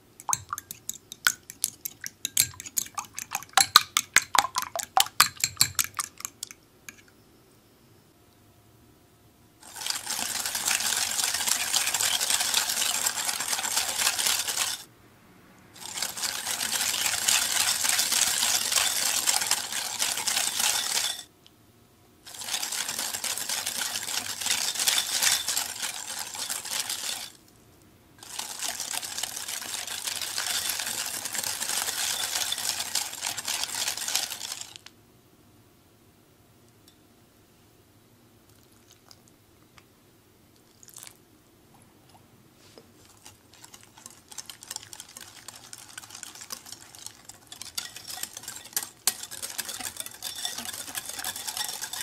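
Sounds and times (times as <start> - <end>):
whisk scraping glass bowl: 0.2 - 6.5, 9.6 - 14.9, 15.8 - 21.3, 22.3 - 27.4, 28.2 - 34.7, 43.0 - 52.0.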